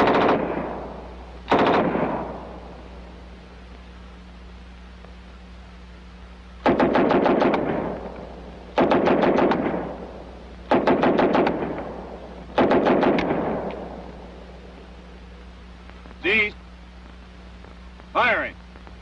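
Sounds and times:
submachine gun automatic bursts: 0.0s - 2.6s, 6.6s - 10.1s, 10.7s - 14.0s
gunfire echo: 0.0s - 3.1s, 6.6s - 14.3s.

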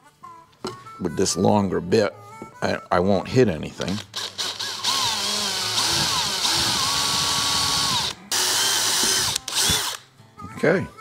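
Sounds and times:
power drill drilling through plastic: 3.9s - 10.0s.

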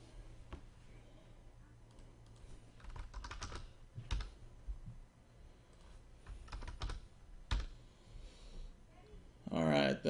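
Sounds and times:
keyboard typing: 1.9s - 4.4s, 5.7s - 7.7s.

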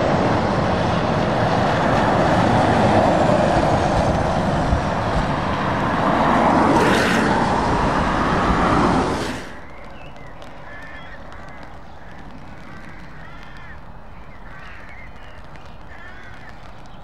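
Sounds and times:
road ambience: 0.0s - 17.0s
tyre spray hiss: 6.5s - 9.7s
birds calling: 9.2s - 17.0s.

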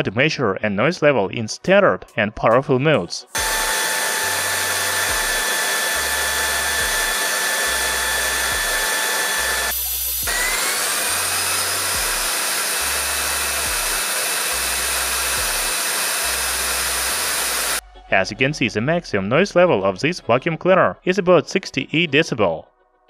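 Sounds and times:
stick vacuum motor whining: 3.4s - 17.8s.

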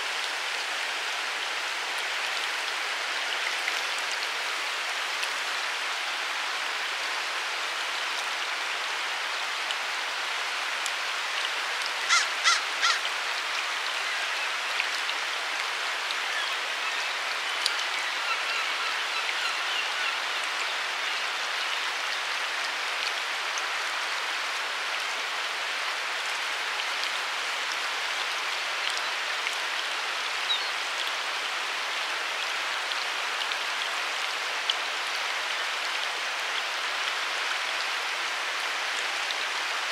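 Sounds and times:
river water flowing: 0.0s - 39.9s
bird calls: 12.1s - 13.0s.

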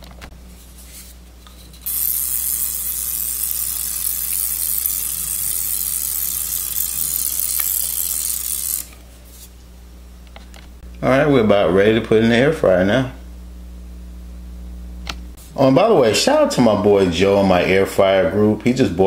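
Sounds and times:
pepper grinder grinding: 1.4s - 9.0s.

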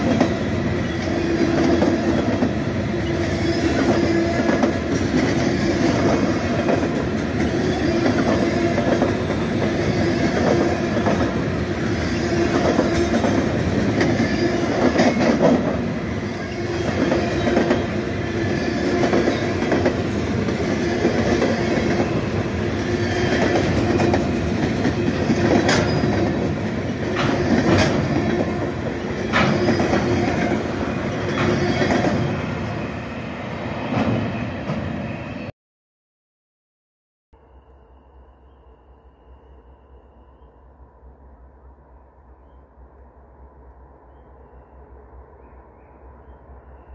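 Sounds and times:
freight train rumble: 0.0s - 35.5s
train wheels clacking over joints: 23.1s - 26.5s, 27.1s - 28.6s.

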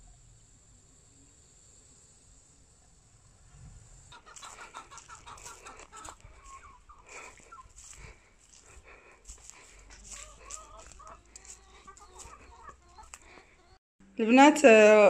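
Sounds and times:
hens clucking: 4.1s - 13.8s.

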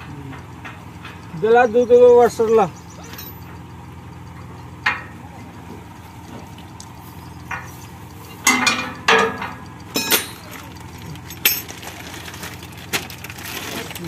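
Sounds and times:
metal washers and nuts clinking: 3.0s - 3.8s, 7.4s - 14.0s.

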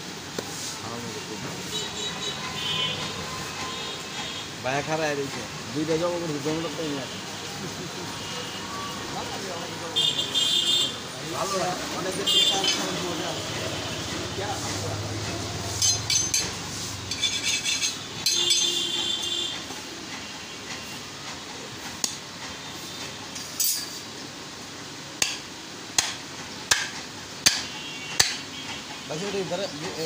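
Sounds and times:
steel blades clinking and scraping: 15.7s - 19.0s, 23.4s - 24.0s
cleaver chopping meat on wooden block: 26.0s - 28.4s.

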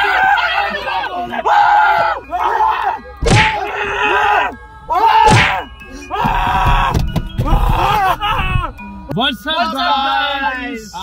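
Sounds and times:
men yelling in fright: 0.0s - 8.9s
sharp slaps: 3.2s - 3.6s, 5.3s - 5.6s
dull thuds inside a car: 6.2s - 8.8s.

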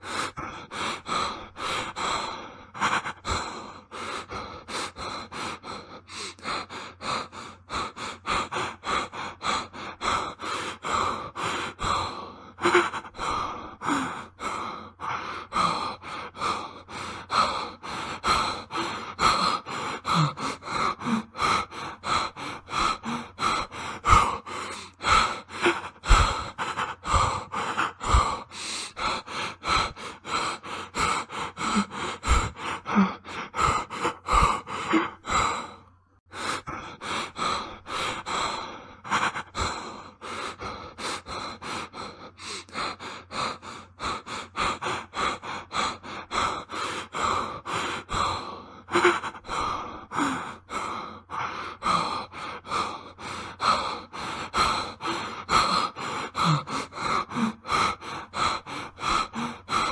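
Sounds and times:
man panting heavily: 0.0s - 59.9s.

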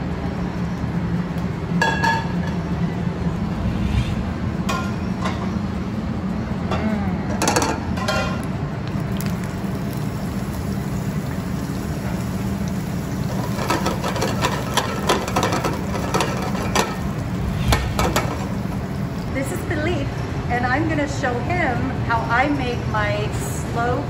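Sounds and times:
low hum: 0.0s - 7.4s, 15.8s - 20.5s
onion sizzling in oil: 8.9s - 19.4s.

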